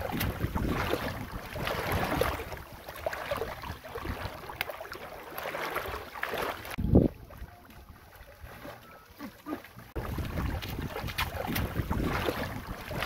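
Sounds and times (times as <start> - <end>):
wind buffeting microphone: 0.0 - 4.5, 6.7 - 8.0, 10.0 - 13.0.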